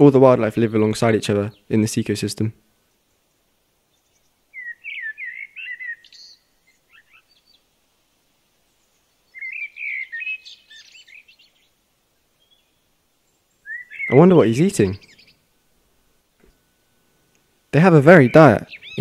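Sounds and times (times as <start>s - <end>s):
songbird warbling: 2.8s - 7.8s, 8.6s - 19.0s.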